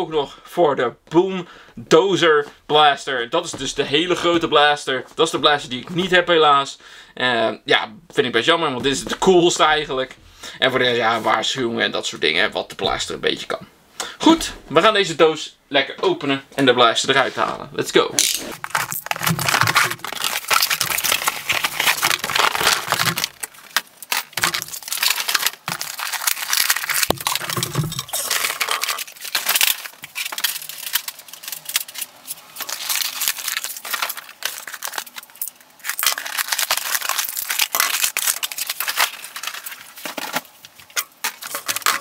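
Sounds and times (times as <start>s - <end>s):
cardboard packaging rustling: 18.3s - 42.0s.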